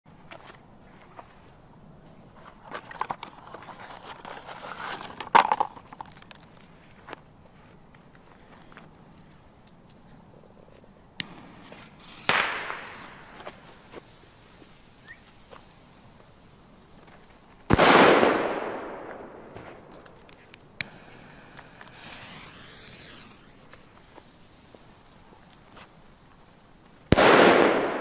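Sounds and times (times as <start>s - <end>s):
short hiss: 11.2s - 17.8s, 20.8s - 27.3s
firecracker bang: 11.3s - 13.7s, 17.7s - 20.0s, 20.9s - 25.0s, 27.1s - 28.0s.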